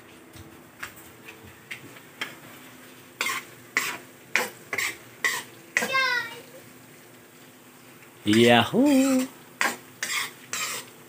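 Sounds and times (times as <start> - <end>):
oil sizzling: 0.0 - 11.0
metal ladle scraping wok: 8.9 - 10.9.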